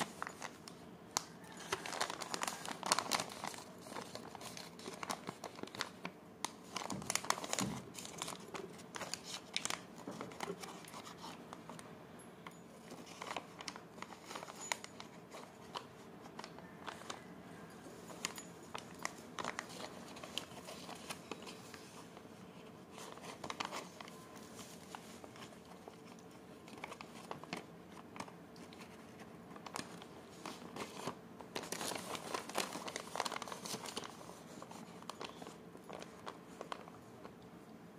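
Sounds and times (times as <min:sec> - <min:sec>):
wrapper tearing: 0:00.0 - 0:11.4, 0:18.2 - 0:21.6, 0:22.9 - 0:37.0
wrapper crinkling and rustling: 0:00.0 - 0:11.8, 0:12.7 - 0:37.4.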